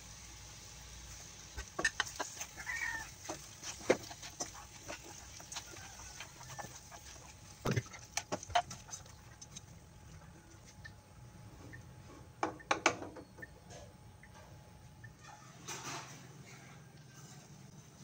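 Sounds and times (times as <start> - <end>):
sauce simmering hiss: 0.0 - 10.4
utensil tapping frying pan: 1.5 - 9.6.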